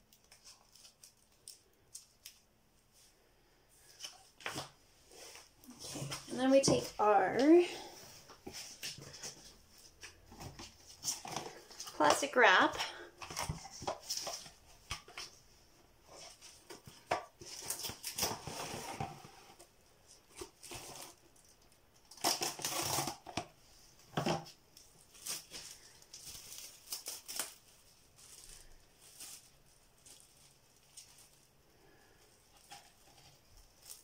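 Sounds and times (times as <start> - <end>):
plastic wrap crinkling: 0.0 - 2.5, 16.0 - 19.0, 20.0 - 34.0.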